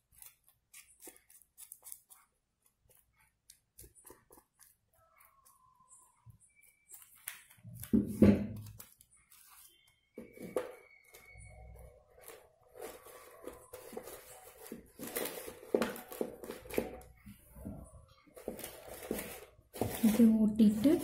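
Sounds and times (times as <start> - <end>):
corn husk and paper rustling: 6.9 - 17.0, 18.4 - 21.0.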